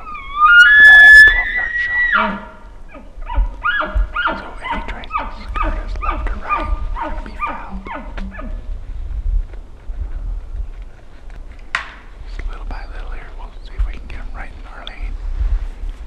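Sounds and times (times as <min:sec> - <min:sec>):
elk grunting calls: 0:00.0 - 0:08.7.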